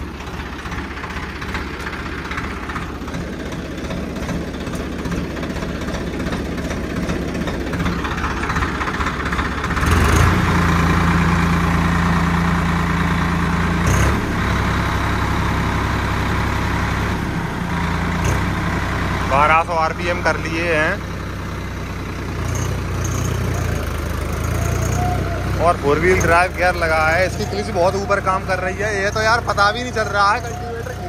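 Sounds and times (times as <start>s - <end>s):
tractor diesel engine running: 0.0s - 31.0s.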